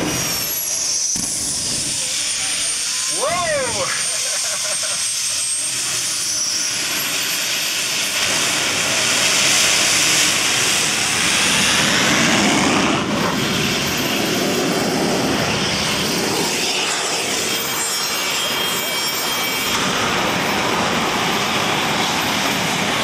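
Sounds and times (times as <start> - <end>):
gas turbine jet roar: 0.0 - 23.0
high turbine whine: 0.0 - 23.0.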